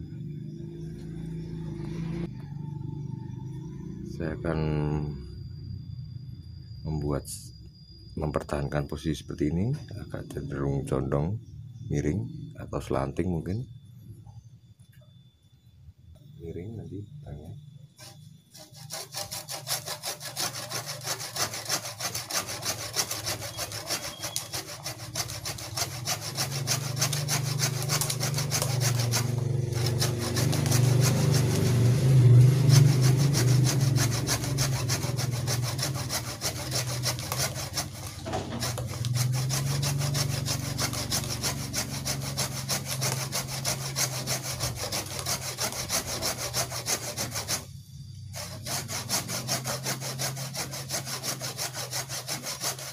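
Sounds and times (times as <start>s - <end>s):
hand saw cutting wood: 18.0s - 47.7s, 48.3s - 52.9s.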